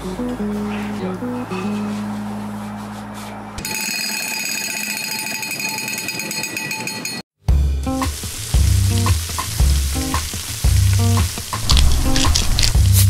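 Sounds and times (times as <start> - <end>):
guitar music: 0.0 - 2.8, 7.6 - 13.0
music with heavy bass beat: 7.4 - 13.0
chicken sizzling on hot stones: 7.9 - 13.0.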